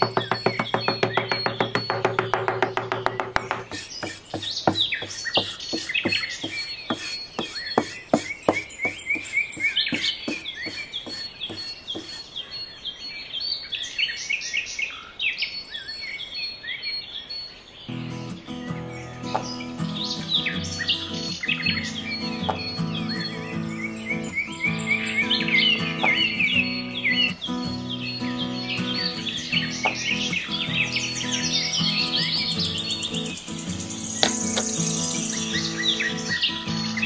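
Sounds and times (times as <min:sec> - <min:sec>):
small birds chirping: 0:00.0 - 0:37.0
music: 0:17.9 - 0:37.0.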